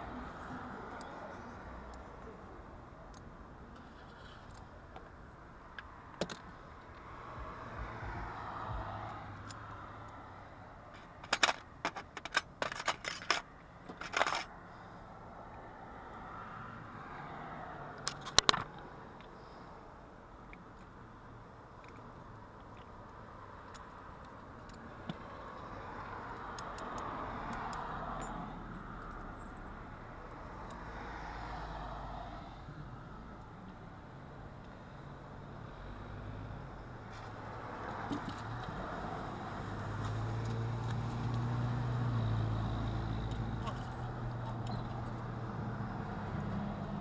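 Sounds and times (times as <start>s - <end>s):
road traffic passing: 0.0s - 47.0s
metallic clicks of lock parts: 10.9s - 14.5s, 18.0s - 19.3s, 23.6s - 25.2s, 26.1s - 28.4s
small metal parts clicking: 11.0s - 14.5s.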